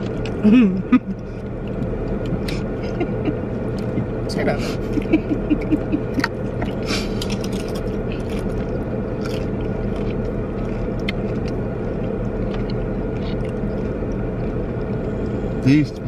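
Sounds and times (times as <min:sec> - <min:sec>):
clicks and scrapes of eating: 0:00.0 - 0:00.4, 0:01.0 - 0:02.7, 0:06.1 - 0:15.4
car engine humming: 0:00.0 - 0:16.0.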